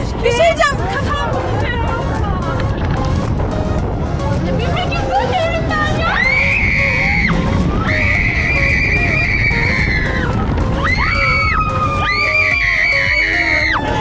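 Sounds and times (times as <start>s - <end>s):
roller coaster train rumbling: 0.0s - 14.0s
wind rushing: 0.0s - 14.0s
riders screaming: 6.0s - 14.0s.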